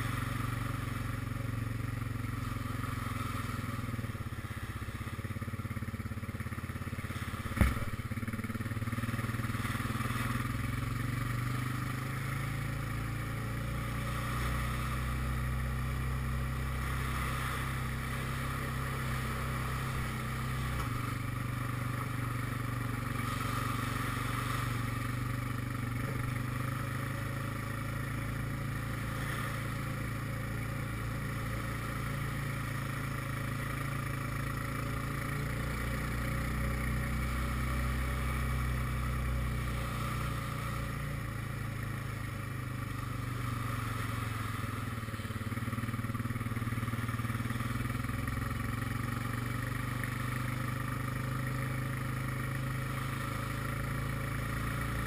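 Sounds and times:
quad bike engine running: 0.0s - 55.0s.

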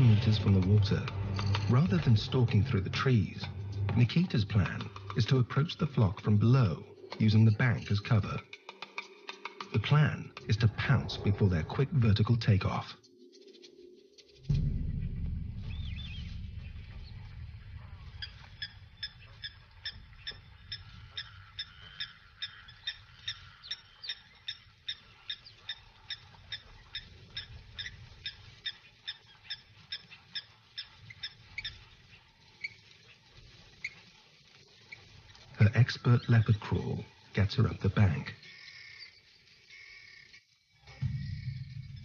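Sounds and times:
low rumble: 0.0s - 7.0s, 9.8s - 12.9s, 14.4s - 21.4s, 41.0s - 42.0s
guineafowl calling: 17.8s - 32.2s.

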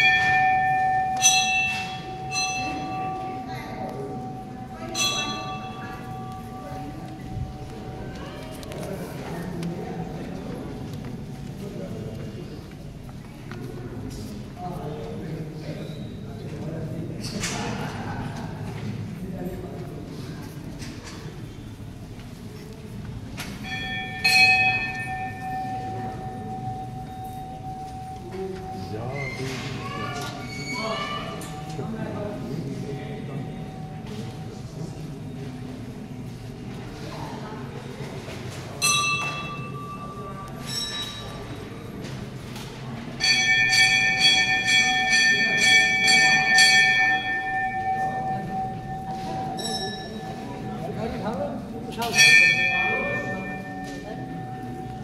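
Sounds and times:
temple bell ringing: 0.0s - 9.6s, 23.4s - 36.0s, 38.7s - 55.0s.

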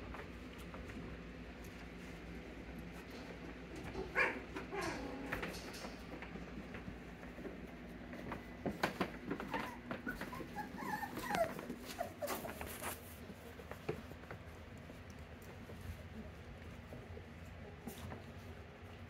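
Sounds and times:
puppies whimpering and squeaking: 9.3s - 13.0s.

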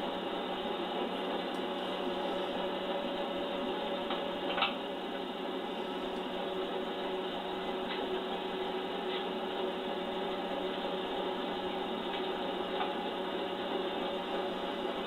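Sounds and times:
lathe humming: 0.0s - 15.0s.

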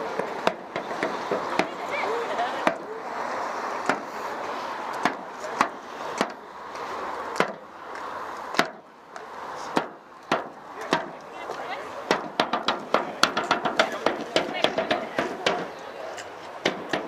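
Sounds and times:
background hubbub: 0.0s - 17.0s
sharp knocks: 5.0s - 6.4s, 9.7s - 11.1s, 12.1s - 15.7s, 16.6s - 17.0s.

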